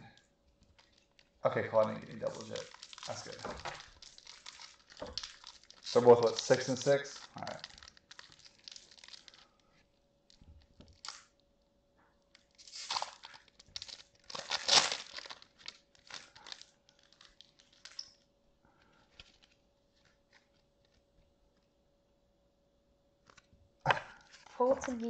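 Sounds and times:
foil packs tearing and crinkling: 0.8 - 9.6, 10.9 - 11.2, 12.5 - 18.0.

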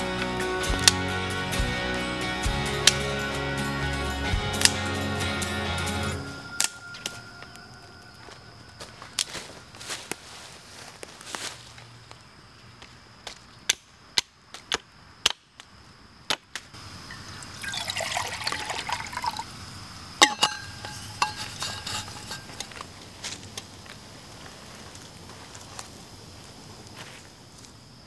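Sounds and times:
water poured into metal pot: 17.1 - 19.5, 20.2 - 22.5
metal clank ringing: 20.2 - 22.8.

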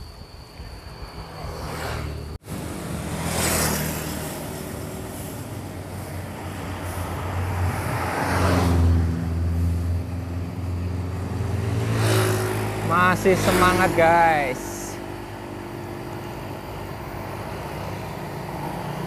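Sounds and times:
vehicles passing close by: 0.1 - 19.0
low engine hum: 0.7 - 19.0
high whine: 9.0 - 19.0.

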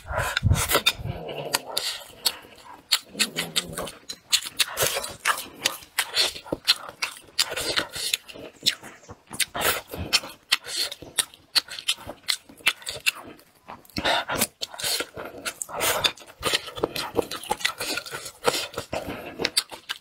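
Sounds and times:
lip smacks and mouth clicks: 0.0 - 20.0
wet chewing: 0.0 - 20.0.

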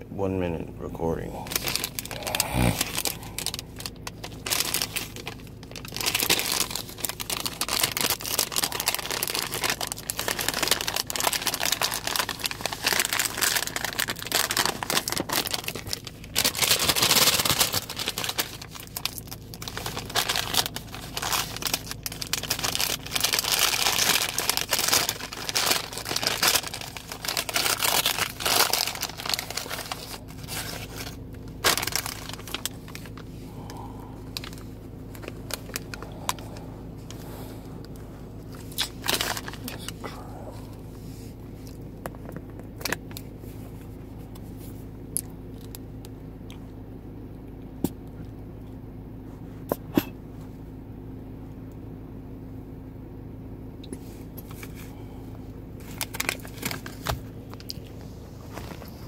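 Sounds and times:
faint steady low hum: 0.0 - 59.0
paper sleeve crinkling and tearing: 1.4 - 33.7, 38.5 - 40.0, 55.8 - 57.7.

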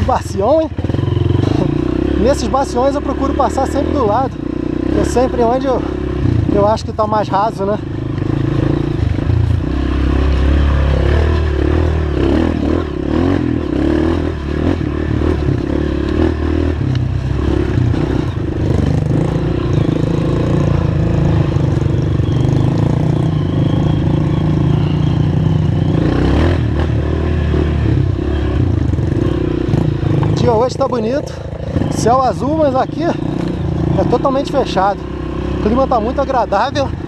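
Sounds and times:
dirt bike engine: 0.0 - 37.0.

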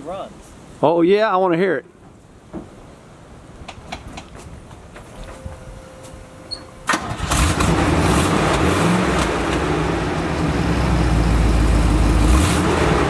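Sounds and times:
truck engine starting and running: 6.5 - 13.0.

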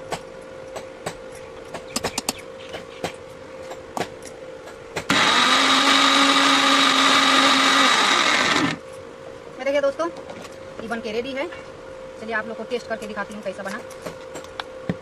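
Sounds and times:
electric mixer grinder running: 5.1 - 8.8.

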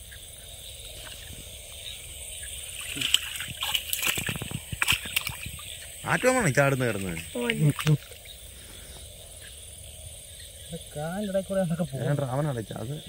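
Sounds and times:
water splashing and sloshing: 0.8 - 8.4
fish thrashing in trap: 2.8 - 5.7.

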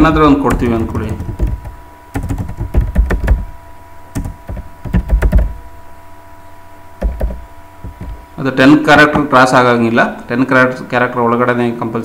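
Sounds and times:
typing on computer keyboard: 0.5 - 3.5, 4.2 - 5.6, 7.0 - 8.2.

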